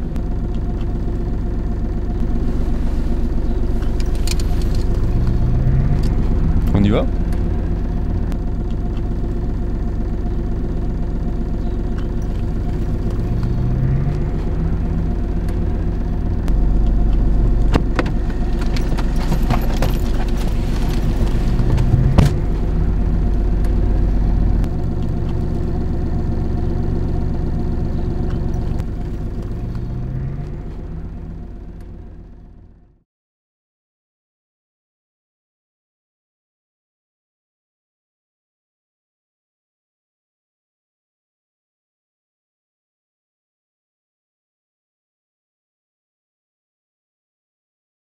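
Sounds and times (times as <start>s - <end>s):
car engine and road noise: 0.0s - 33.0s.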